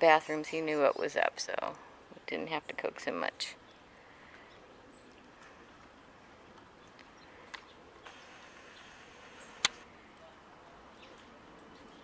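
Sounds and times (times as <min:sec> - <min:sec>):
outdoor background hiss: 0:00.0 - 0:12.0
faint clicks: 0:05.4 - 0:10.2.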